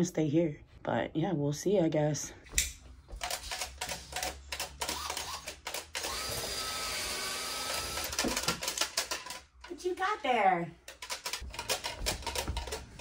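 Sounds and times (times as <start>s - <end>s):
power drill drilling into wall: 4.8s - 8.6s.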